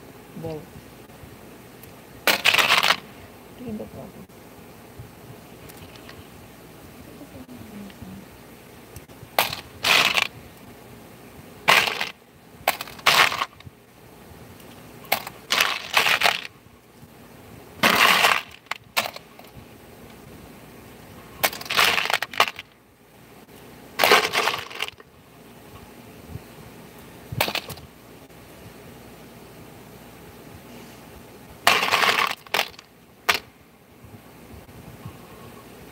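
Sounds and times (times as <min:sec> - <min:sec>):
metal parts clattering in plastic bin: 0:24.0 - 0:25.0.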